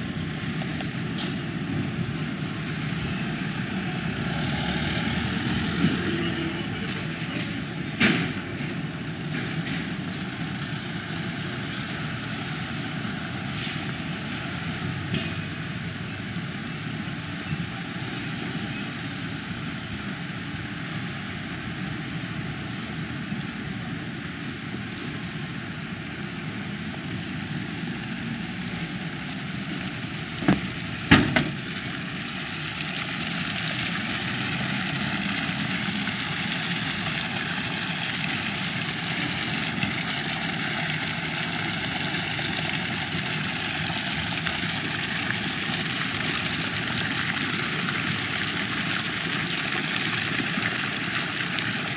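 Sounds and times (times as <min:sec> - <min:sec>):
fountain water splashing: 0:00.0 - 0:51.9
traffic noise: 0:00.0 - 0:51.9.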